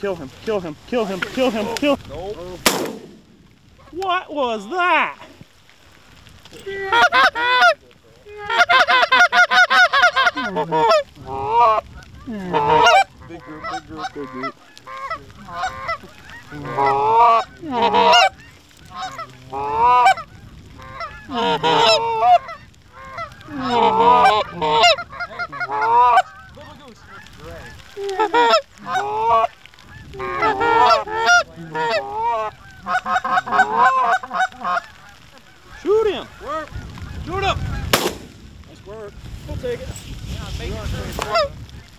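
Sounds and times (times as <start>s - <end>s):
goose honking and clucking: 6.9s - 38.1s, 41.0s - 41.9s.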